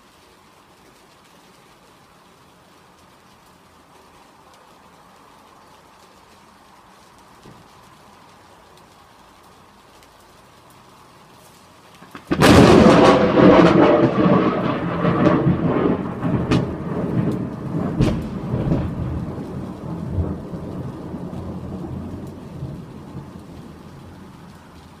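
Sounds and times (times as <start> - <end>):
steady rain: 0.0 - 25.0
thunder rumble: 12.0 - 25.0
loud thunder crack: 12.2 - 22.0.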